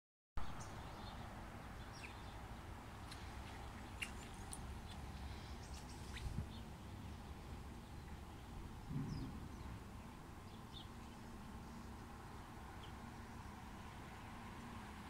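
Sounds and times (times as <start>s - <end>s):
low steady rumble: 2.6s - 12.1s
bird chirps: 3.1s - 6.7s.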